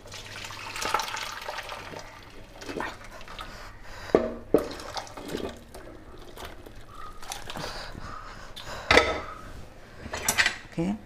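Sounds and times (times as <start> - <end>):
thick food pouring: 0.0 - 3.4.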